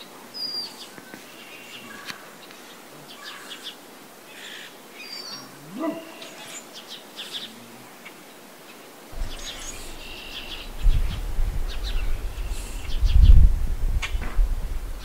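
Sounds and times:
songbirds chirping and trilling: 0:00.0 - 0:15.0
wind buffeting microphone: 0:09.1 - 0:15.0.

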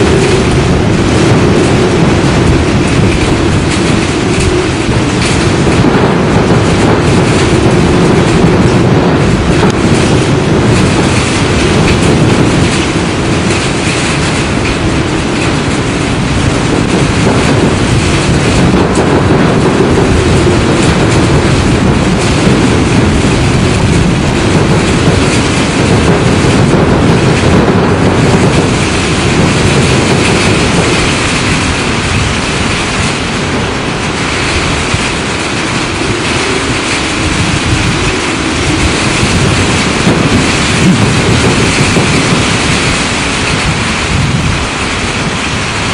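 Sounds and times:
strong wind blowing: 0:00.0 - 0:45.9
wind buffeting microphone: 0:00.0 - 0:45.9.

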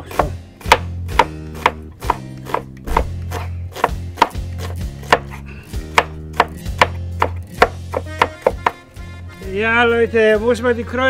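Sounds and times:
knife chopping on wooden board: 0:00.0 - 0:08.8.

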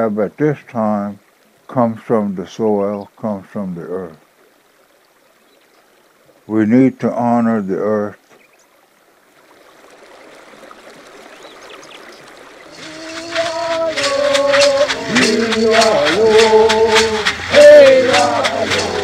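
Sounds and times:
faint rushing: 0:03.4 - 0:19.0
rattle shaken in a beat: 0:12.7 - 0:19.0
voices chanting a song: 0:12.7 - 0:19.0.

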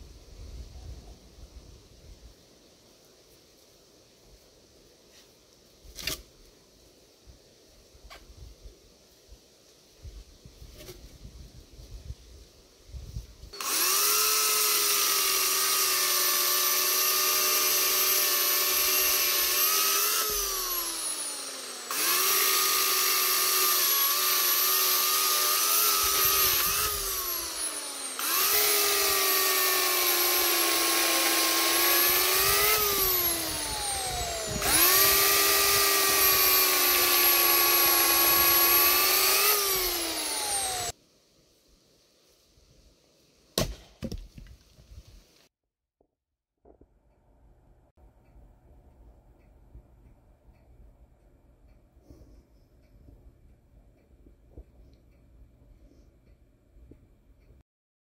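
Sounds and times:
electric chainsaw cutting logs: 0:13.6 - 0:41.0.

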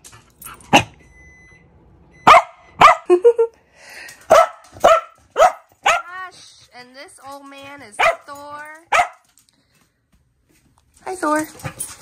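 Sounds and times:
dog barking: 0:02.2 - 0:03.1, 0:04.3 - 0:06.2, 0:08.0 - 0:09.3.

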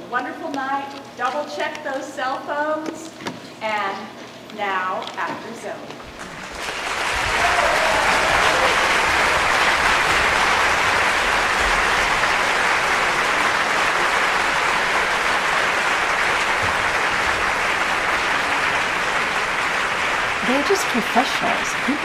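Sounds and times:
audience applauding: 0:06.2 - 0:22.0.

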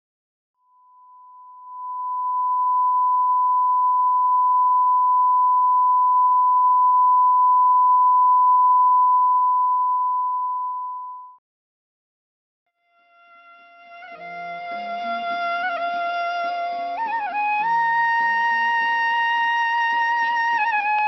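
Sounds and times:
steady electronic tone: 0:00.7 - 0:11.4.

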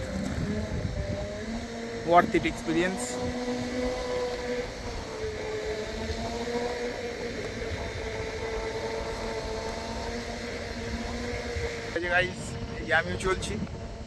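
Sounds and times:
tyres on pavement: 0:00.0 - 0:12.8
electric drive whining: 0:00.0 - 0:14.0
wind rumble: 0:00.0 - 0:14.0.

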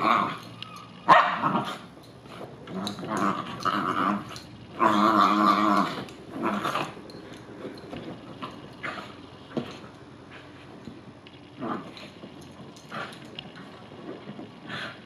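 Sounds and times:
dog growling: 0:00.0 - 0:10.9, 0:11.6 - 0:15.0
dog barking: 0:01.1 - 0:01.5.

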